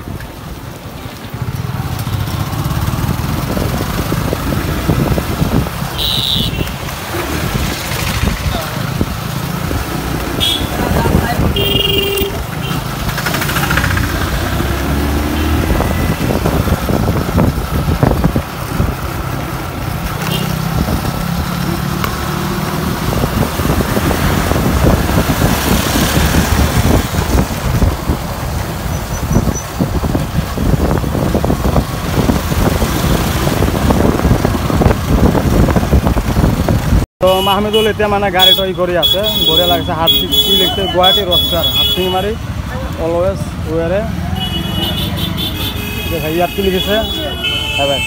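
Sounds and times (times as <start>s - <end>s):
motorcycle engines running: 0.0s - 48.0s
wind noise on microphone: 2.7s - 12.5s, 15.4s - 20.0s, 20.6s - 21.4s, 22.0s - 37.1s.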